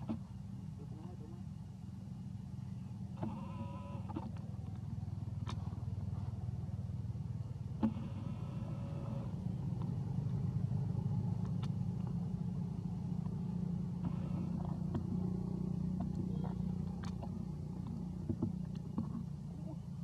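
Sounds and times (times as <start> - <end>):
motor running: 3.0 - 6.2, 7.7 - 20.0.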